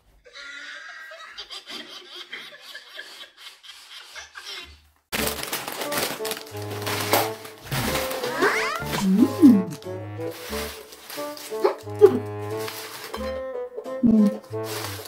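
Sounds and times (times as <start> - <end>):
soft laughter: 0.3 - 4.9
loud music: 6.2 - 10.4.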